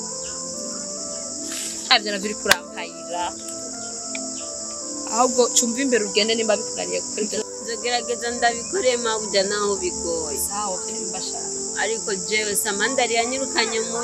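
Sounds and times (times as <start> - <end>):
high-pitched insect chorus: 0.0 - 14.0
women talking: 1.9 - 3.4, 5.1 - 14.0.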